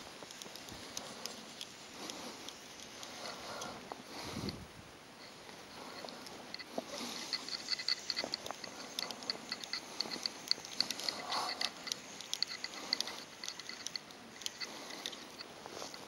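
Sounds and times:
fishing reel clicking: 0:05.2 - 0:16.0.

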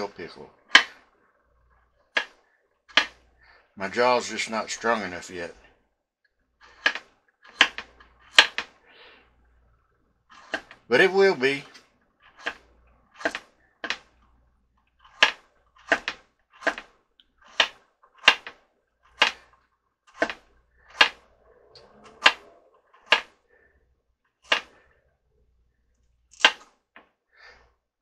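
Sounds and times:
knife chopping on cutting board: 0:15.2 - 0:16.9, 0:19.2 - 0:19.4.

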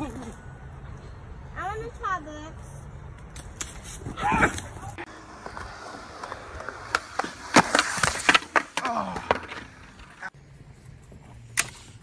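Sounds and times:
skateboard wheels rolling on concrete: 0:03.1 - 0:12.0.

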